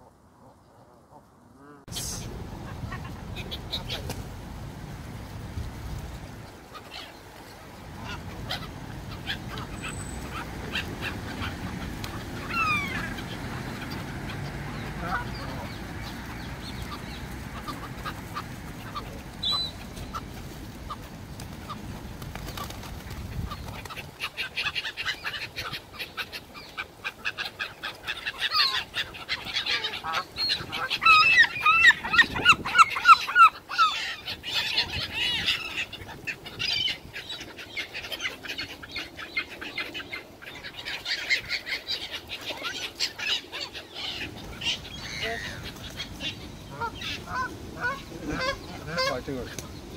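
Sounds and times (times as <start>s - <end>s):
wings flapping: 2.8s - 4.5s, 5.2s - 32.8s, 44.1s - 49.8s
birds calling: 6.2s - 49.9s
geese honking: 7.9s - 21.8s, 40.8s - 49.6s.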